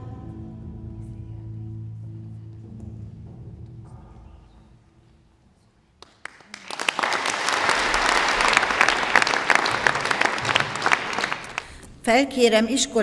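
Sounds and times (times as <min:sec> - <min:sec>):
audience applause: 0:06.0 - 0:11.8.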